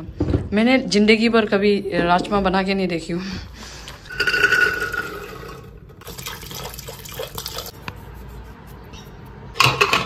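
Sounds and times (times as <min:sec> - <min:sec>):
water pouring into a pot: 0:04.8 - 0:07.8.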